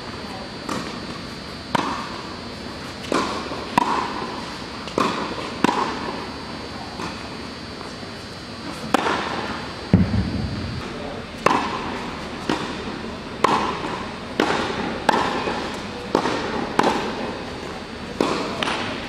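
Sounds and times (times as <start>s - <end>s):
tennis ball bouncing on court: 10.0s - 17.3s
tennis ball struck by rackets: 10.0s - 17.3s.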